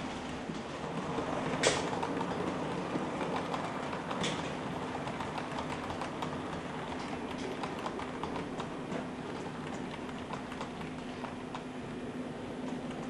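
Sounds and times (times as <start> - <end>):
model train wheels clicking: 1.2 - 12.0.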